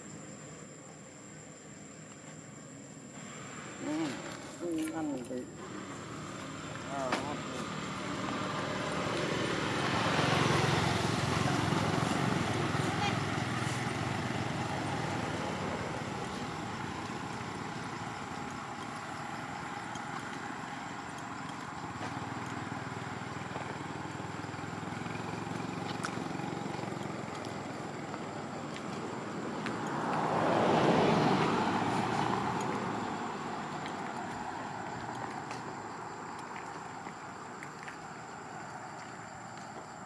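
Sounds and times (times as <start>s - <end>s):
outdoor road noise: 0.0s - 40.0s
car driving past: 5.6s - 37.1s.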